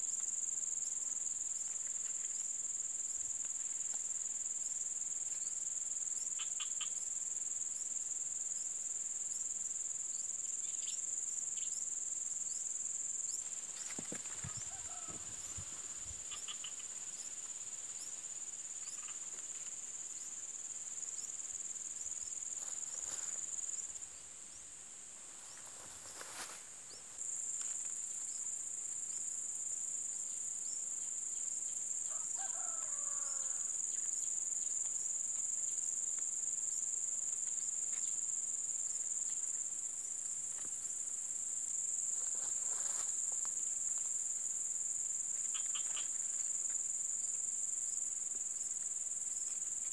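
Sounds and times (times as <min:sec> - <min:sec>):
insect chorus shrilling: 0:05.3 - 0:07.7, 0:09.3 - 0:24.6, 0:30.2 - 0:34.8, 0:41.8 - 0:49.9.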